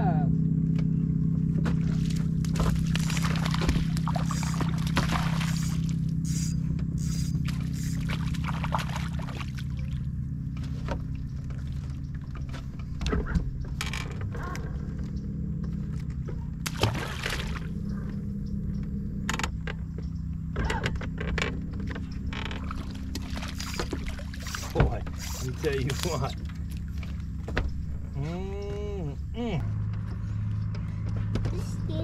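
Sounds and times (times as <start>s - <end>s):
boat motor humming: 0.0s - 32.0s
water sloshing: 1.7s - 13.0s, 15.9s - 18.3s, 21.8s - 28.2s.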